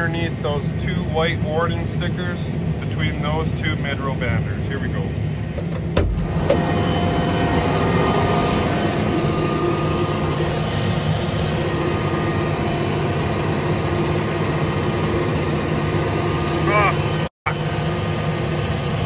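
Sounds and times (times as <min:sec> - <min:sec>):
thin steady whine: 0:06.3 - 0:19.0.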